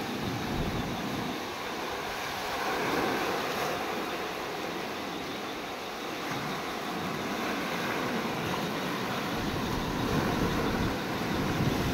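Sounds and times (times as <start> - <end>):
waves washing over rocky shore: 0.0 - 5.1.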